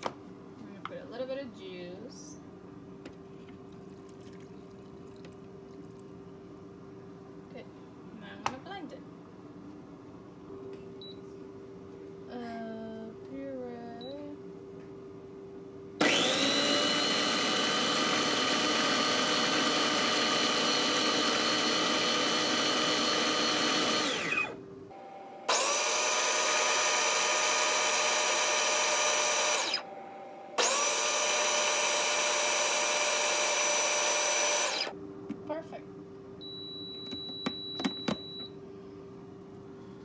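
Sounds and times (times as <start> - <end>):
blender motor pureeing: 16.0 - 24.6, 25.5 - 29.9, 30.6 - 34.9.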